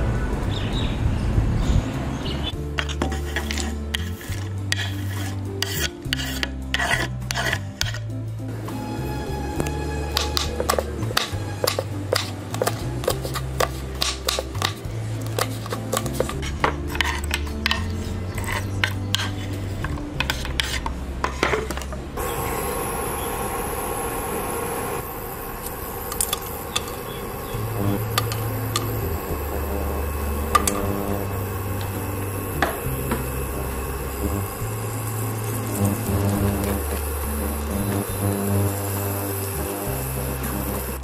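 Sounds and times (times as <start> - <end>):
spices sizzling in hot oil: 2.8 - 8.0, 8.8 - 19.4, 22.2 - 41.0
knife clicks cutting chillies: 10.2 - 16.3
oil popping: 24.8 - 41.0.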